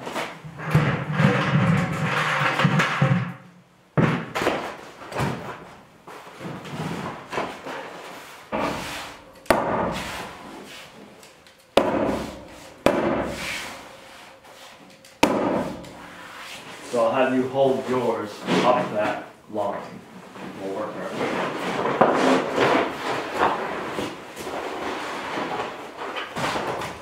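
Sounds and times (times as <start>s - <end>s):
hammer tacker strikes: 9.4s - 10.1s, 11.8s - 13.6s, 15.2s - 16.1s.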